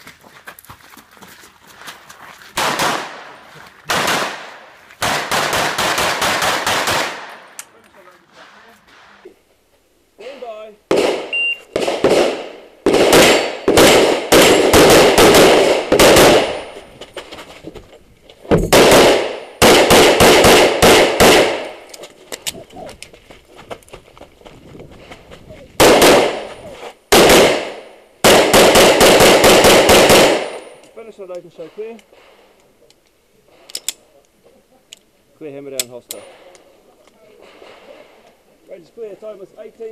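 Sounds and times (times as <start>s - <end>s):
rapid pistol gunfire: 2.6s - 3.3s, 3.9s - 7.5s, 10.9s - 16.7s, 18.7s - 21.8s, 25.8s - 26.5s, 27.1s - 30.6s.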